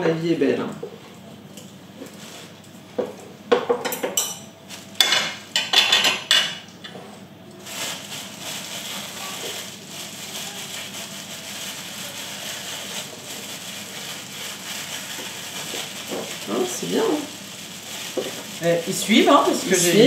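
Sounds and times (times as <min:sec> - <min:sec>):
utensils and dishes clinking: 0:03.1 - 0:07.2.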